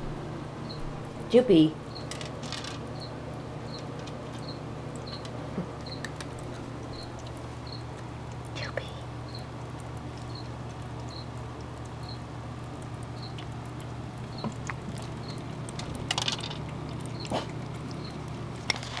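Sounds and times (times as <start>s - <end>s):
steady low hum: 0.0s - 19.0s
cat crunching dry kibble: 14.5s - 19.0s.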